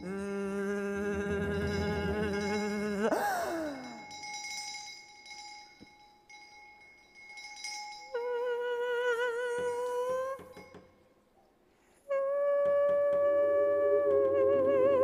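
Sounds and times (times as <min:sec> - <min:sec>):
glassy ringing tones: 0:01.4 - 0:11.3.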